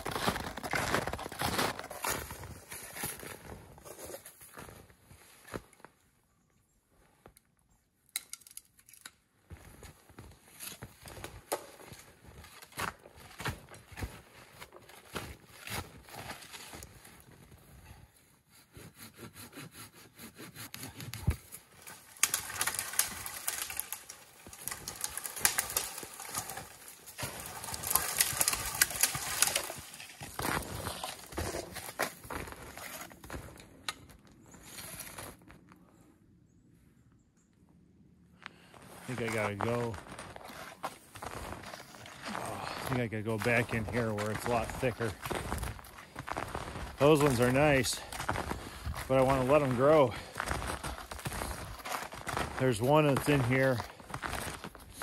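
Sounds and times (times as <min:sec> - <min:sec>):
boots crunching through snow: 0:00.0 - 0:05.6, 0:27.2 - 0:33.6, 0:38.8 - 0:55.0
twigs and branches snapping: 0:21.0 - 0:34.2.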